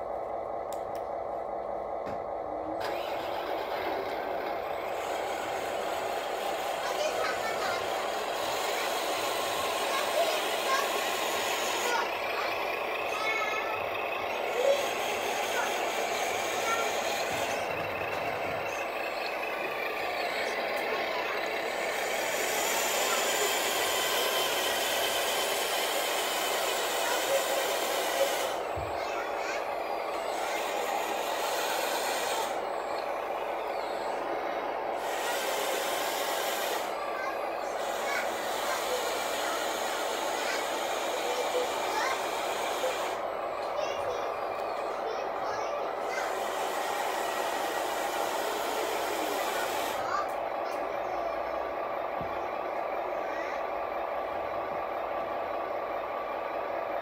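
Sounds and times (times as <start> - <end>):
toy truck motor humming: 0.0 - 57.0
click: 0.6 - 1.1.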